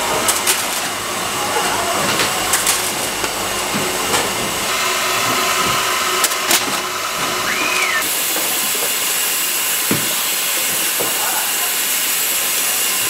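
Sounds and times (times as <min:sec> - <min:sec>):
street stall background hiss: 0:07.5 - 0:13.0.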